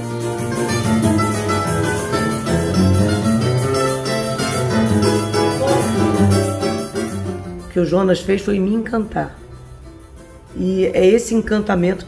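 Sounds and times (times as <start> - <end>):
low guitar line: 0.0 - 12.0
string ensemble playing: 2.3 - 7.6.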